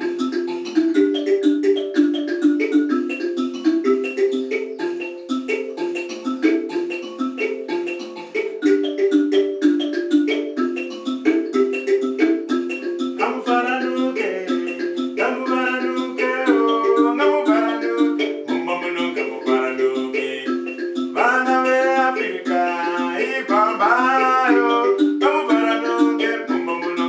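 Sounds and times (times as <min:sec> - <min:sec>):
mbira plucked notes: 0:00.0 - 0:27.0
man singing: 0:13.2 - 0:27.0.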